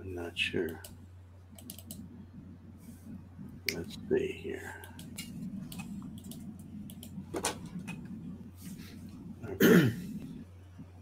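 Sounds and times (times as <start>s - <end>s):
low electrical hum: 0.0s - 11.0s
faint clicks and taps: 4.8s - 8.2s.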